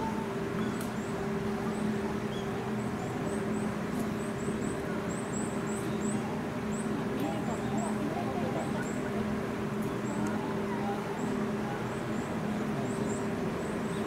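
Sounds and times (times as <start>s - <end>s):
steady mechanical hum: 0.0s - 14.0s.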